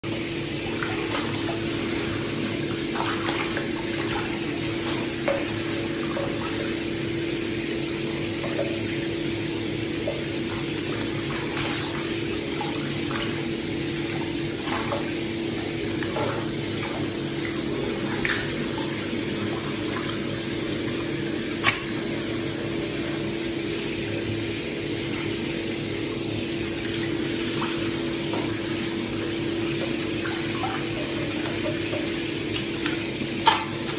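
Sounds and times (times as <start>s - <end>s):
water splashing and lapping: 0.0s - 33.9s
short sharp splashes or knocks: 14.1s - 15.2s, 18.0s - 18.8s.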